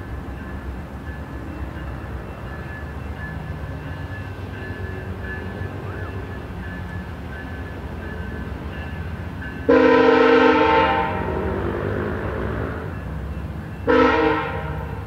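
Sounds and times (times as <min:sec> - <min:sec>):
rumble of rolling train cars: 0:00.0 - 0:15.0
train air horn blast: 0:09.7 - 0:12.1, 0:13.9 - 0:15.0.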